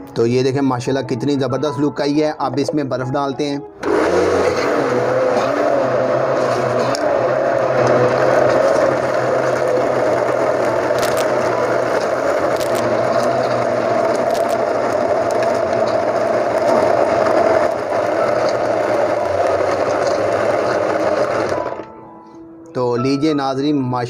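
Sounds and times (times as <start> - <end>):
electric blender running: 3.8 - 22.0.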